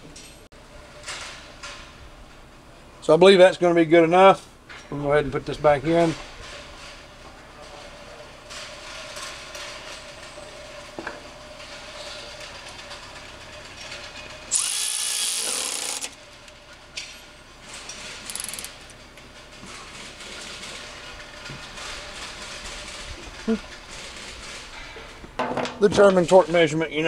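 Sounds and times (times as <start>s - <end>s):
ratchet clicking: 14.5s - 16.2s, 17.7s - 19.0s.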